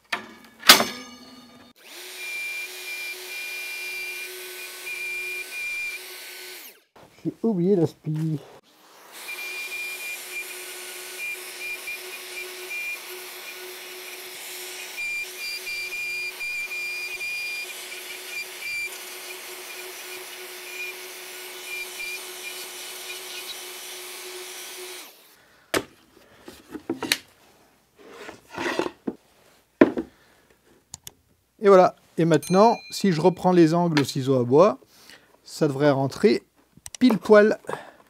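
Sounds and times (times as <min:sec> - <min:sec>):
plunge router whining: 0:01.7 - 0:06.9, 0:08.6 - 0:25.3.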